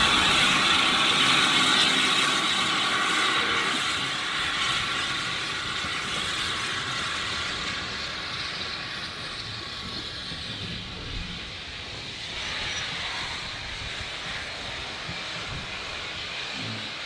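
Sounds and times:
steam hissing: 0:00.0 - 0:17.0.

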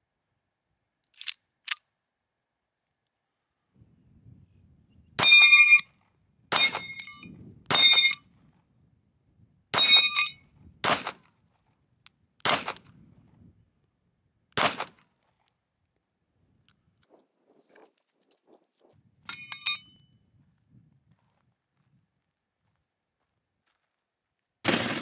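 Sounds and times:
pistol shots: 0:10.8 - 0:11.2, 0:12.4 - 0:12.8, 0:14.6 - 0:15.0, 0:24.7 - 0:25.0.

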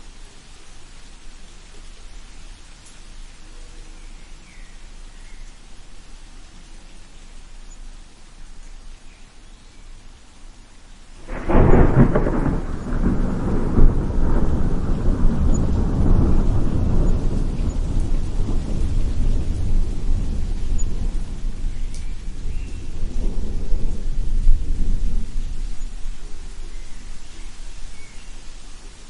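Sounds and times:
steady rain: 0:00.0 - 0:29.0
thunder rumbling: 0:11.2 - 0:28.6.

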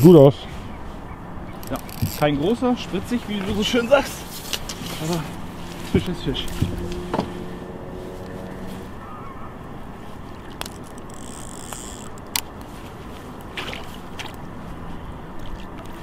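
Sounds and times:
water sloshing against boat hull: 0:00.7 - 0:16.0
sharp clicks of gear handled: 0:01.6 - 0:02.3, 0:10.5 - 0:12.7.

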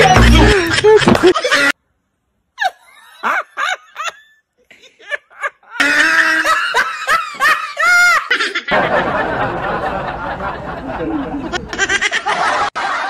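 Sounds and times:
man laughing: 0:00.0 - 0:01.7.

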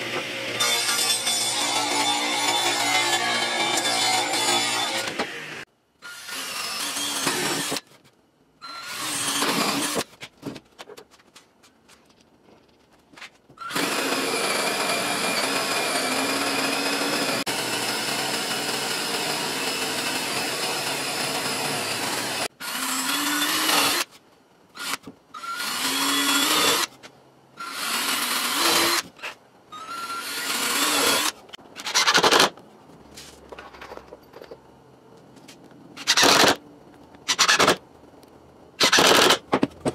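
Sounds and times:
drill with hole saw cutting wood: 0:00.0 - 0:07.8, 0:08.6 - 0:10.0, 0:13.6 - 0:24.1, 0:24.8 - 0:26.9, 0:27.6 - 0:29.1, 0:29.8 - 0:32.4.

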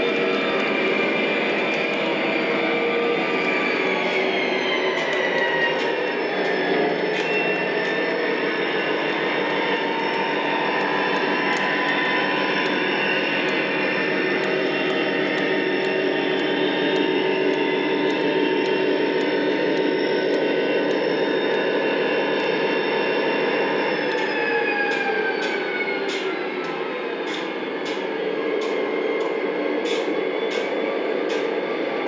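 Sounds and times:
wheels clicking on rail joints: 0:00.0 - 0:22.6
model train running: 0:00.0 - 0:32.0.

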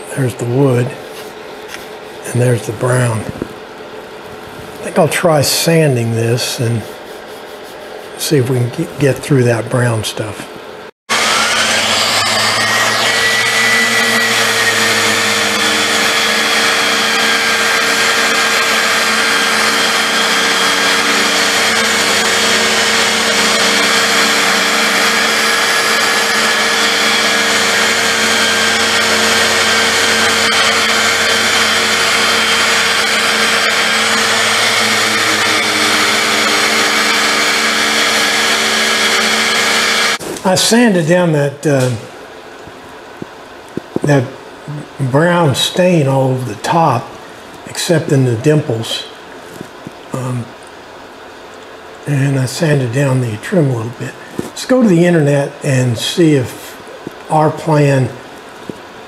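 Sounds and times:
orbital sander on sheet metal: 0:11.1 - 0:40.8.

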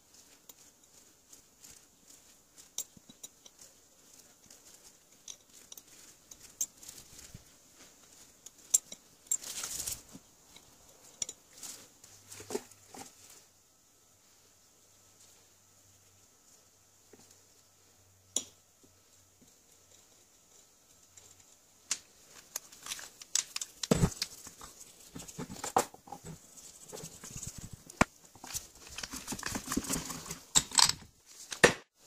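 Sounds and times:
brush scrubbing metal: 0:22.4 - 0:30.5
metal parts clicking and knocking: 0:28.5 - 0:31.7.

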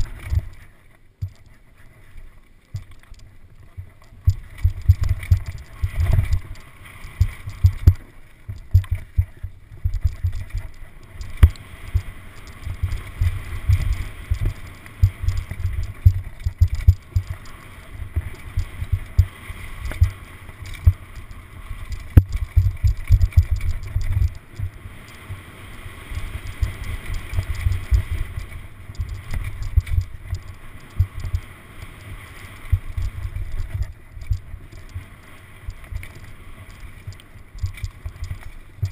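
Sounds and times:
wind buffeting microphone: 0:04.2 - 0:31.5.

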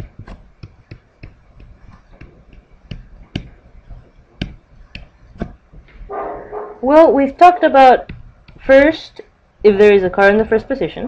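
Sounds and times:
pen stylus clicking and tapping: 0:00.2 - 0:05.6.

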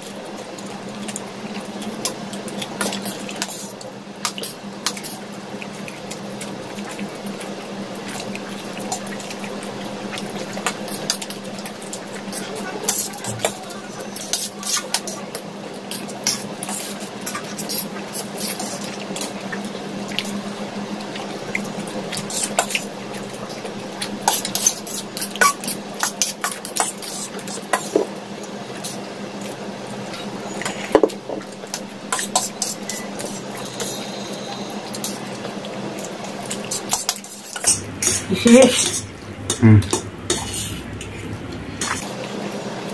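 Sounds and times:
noodle slurping: 0:37.4 - 0:42.0
low steady hum: 0:37.6 - 0:42.0.

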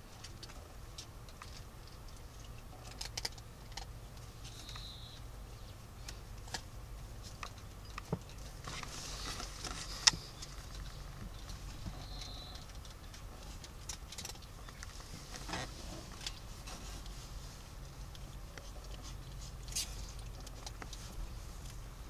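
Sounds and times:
kitten claws scratching on towel: 0:15.0 - 0:21.7.

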